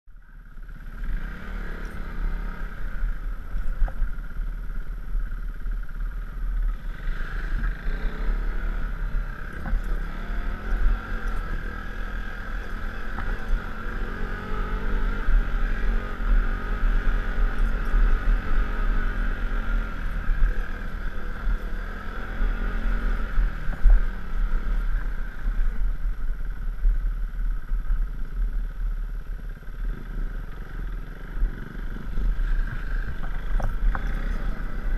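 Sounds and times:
motorcycle engine running: 0.1 - 34.9.

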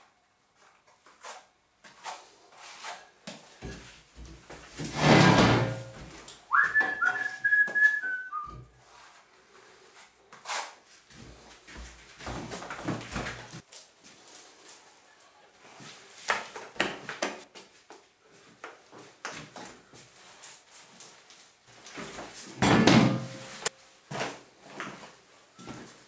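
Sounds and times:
person whistling: 6.5 - 8.6.

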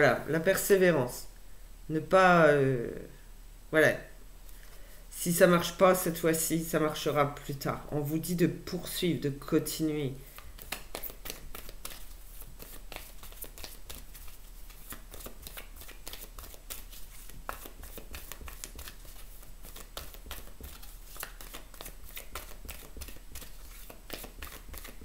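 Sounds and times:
cards being shuffled by hand: 9.7 - 25.0.

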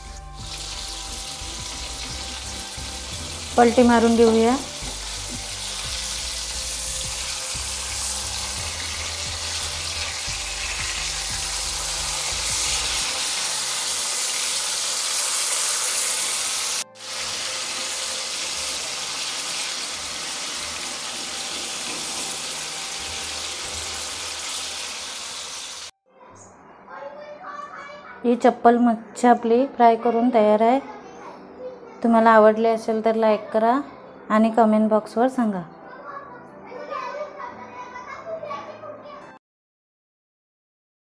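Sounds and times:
fish sizzling in hot oil: 0.0 - 25.9.

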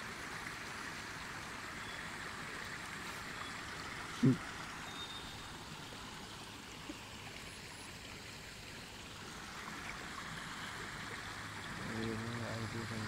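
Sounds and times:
water running down a channel: 0.0 - 13.0
low voice: 4.2 - 4.4, 11.7 - 13.0.

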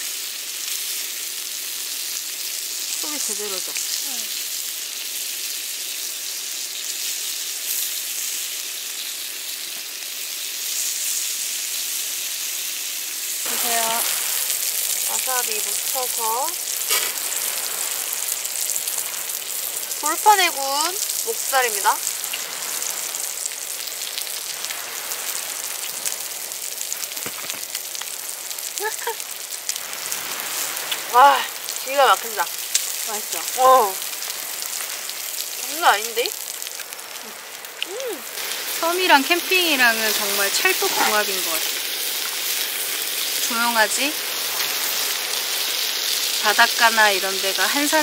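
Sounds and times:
meat sizzling on a grill: 0.0 - 48.0.

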